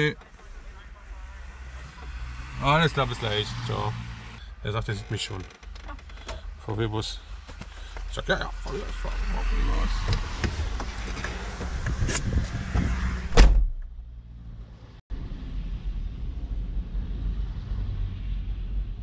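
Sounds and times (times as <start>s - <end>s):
vehicle door slamming: 12.7s - 13.9s.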